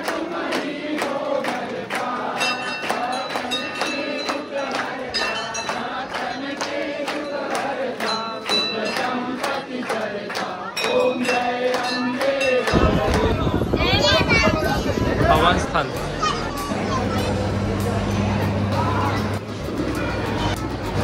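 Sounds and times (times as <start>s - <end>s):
many voices chanting: 0.0s - 13.6s
percussion beat: 0.0s - 14.5s
ringing bells: 2.3s - 9.6s, 10.7s - 13.5s.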